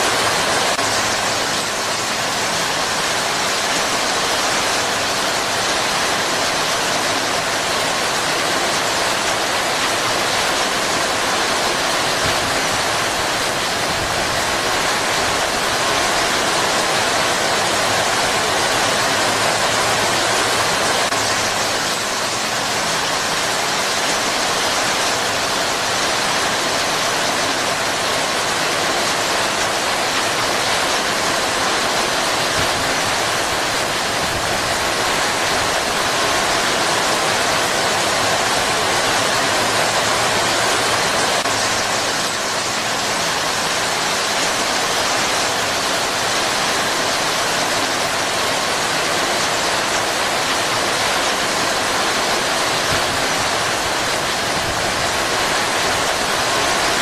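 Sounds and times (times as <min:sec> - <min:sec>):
heavy rain pouring: 0:00.0 - 0:57.0.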